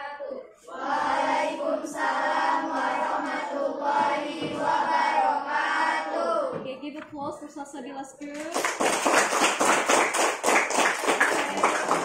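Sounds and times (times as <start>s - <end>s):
group singing in unison: 0.6s - 6.6s.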